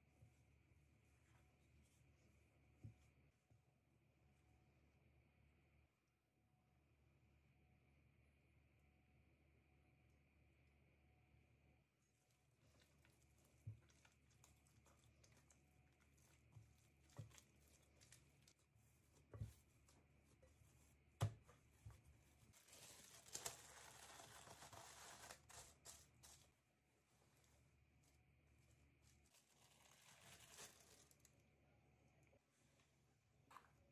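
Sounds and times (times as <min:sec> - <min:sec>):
cling film crinkling: 0:22.5 - 0:26.5, 0:29.1 - 0:31.3.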